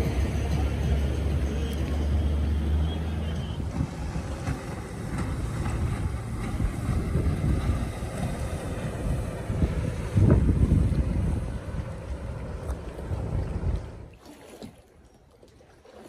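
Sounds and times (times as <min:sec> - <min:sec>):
distant outboard motor: 0:00.0 - 0:16.0
wind buffeting microphone: 0:03.4 - 0:14.1.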